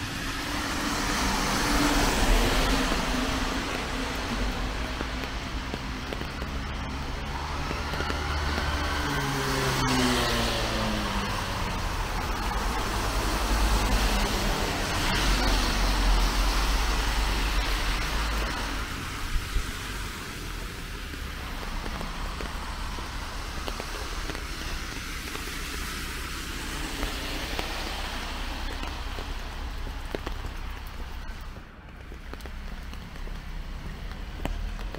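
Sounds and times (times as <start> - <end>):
heavy traffic rumble: 0.0 - 34.9
tyres hissing on wet road: 0.0 - 34.9
vehicle engine passing: 0.3 - 19.0.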